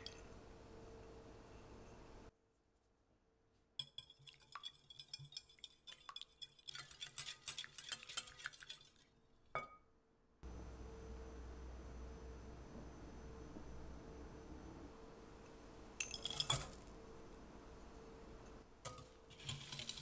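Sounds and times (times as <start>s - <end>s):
whisk clinking against glass bowl: 3.8s - 9.0s.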